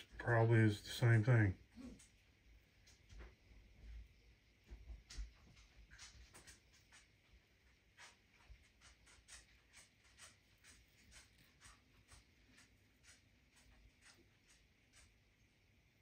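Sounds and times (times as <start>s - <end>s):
fingertips rubbing a pebble: 5.7s - 15.4s.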